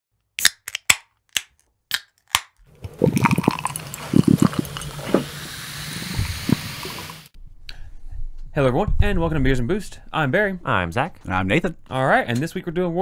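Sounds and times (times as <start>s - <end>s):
beer fizzing: 2.7s - 7.3s
beer pouring into a glass: 2.7s - 7.3s.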